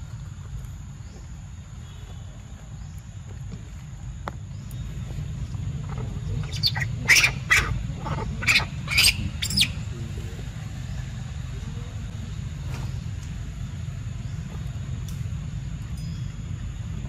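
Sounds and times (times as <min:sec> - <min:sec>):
steady low rumble: 0:00.0 - 0:17.0
young monkeys squealing: 0:05.8 - 0:09.9.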